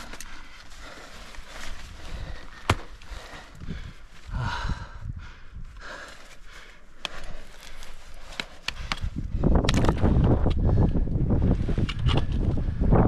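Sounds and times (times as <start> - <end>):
heavy breathing: 0.0 - 9.5
wind buffeting microphone: 1.7 - 6.0, 8.7 - 13.0.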